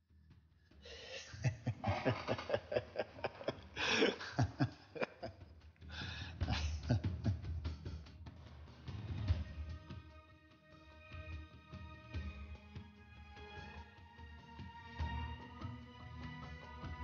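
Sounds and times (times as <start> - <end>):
man laughing heartily: 0.9 - 7.6.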